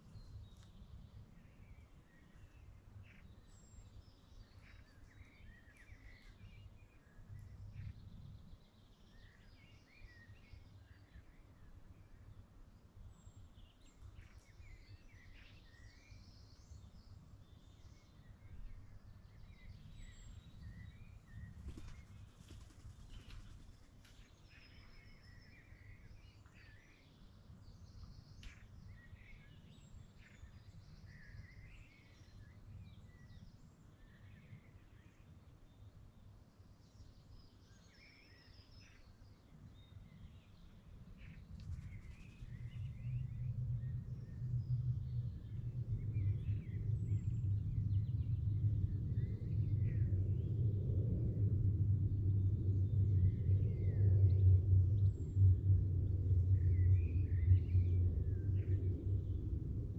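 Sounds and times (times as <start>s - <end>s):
small birds chirping: 0.0s - 50.6s
low steady rumble: 41.1s - 59.9s.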